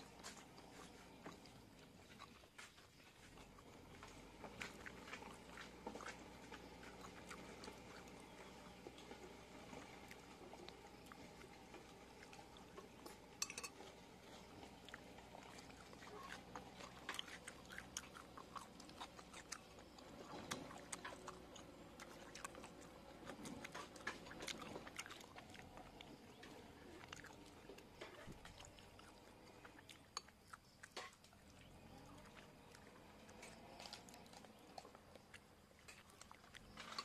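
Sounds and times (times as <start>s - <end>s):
faint chewing: 0.0s - 37.0s
faint steady hum: 0.0s - 37.0s
tableware clinking: 13.4s - 13.8s.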